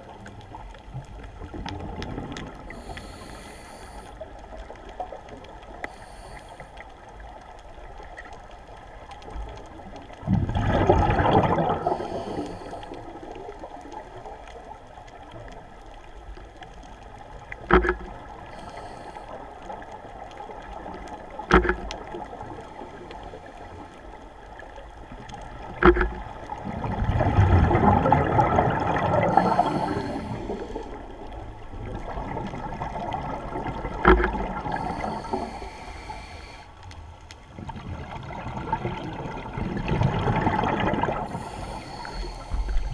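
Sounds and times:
underwater bubbling bursts: 0.0 - 36.7, 37.4 - 42.9
underwater murmur: 25.4 - 36.6.

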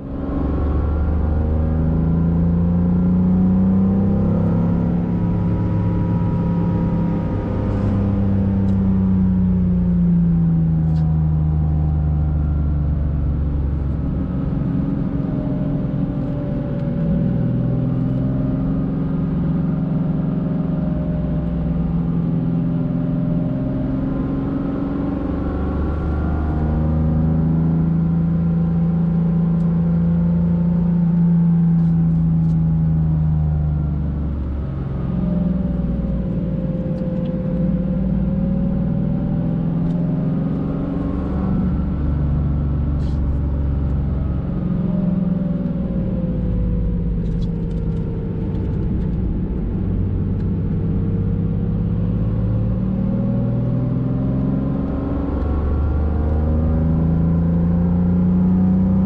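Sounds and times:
car engine heard from cabin: 0.0 - 59.0.

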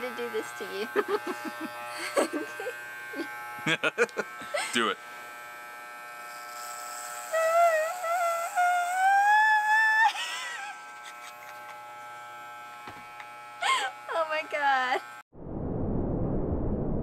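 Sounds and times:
electric hair clippers buzzing: 0.0 - 15.2
high whine rising in pitch: 15.4 - 17.0.

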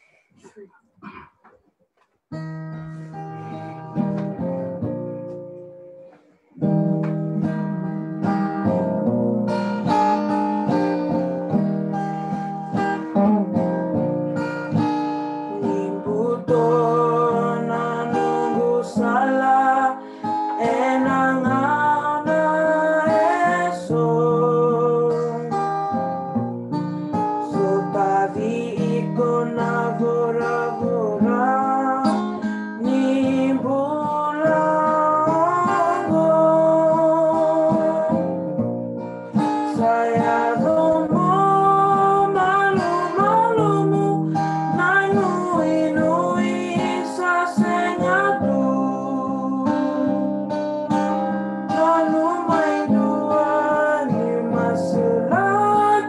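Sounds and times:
acoustic guitar playing: 0.0 - 56.0
people singing: 15.6 - 25.7, 27.5 - 38.4, 39.6 - 49.9, 51.7 - 56.0.

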